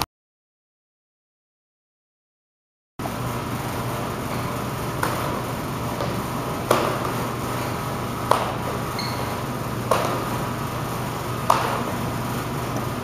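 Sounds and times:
low room hum: 0:03.0 - 0:13.0.

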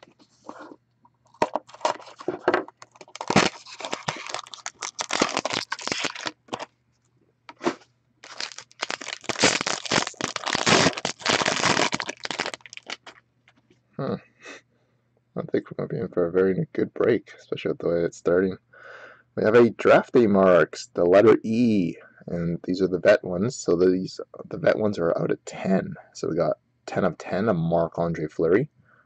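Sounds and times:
foil wrapper crinkling and tearing: 0:02.9 - 0:06.7, 0:07.6 - 0:13.2
cardboard box tearing: 0:03.1 - 0:06.3, 0:08.3 - 0:12.4.

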